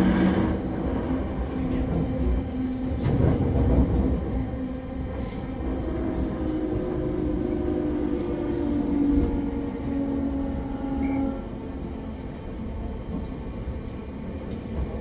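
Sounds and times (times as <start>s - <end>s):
wheels rumbling on rail: 0.0s - 15.0s.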